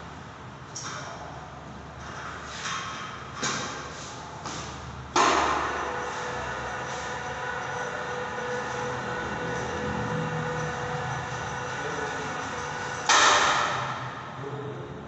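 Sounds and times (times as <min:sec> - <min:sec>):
electric chain hoist whining: 0:05.7 - 0:13.2.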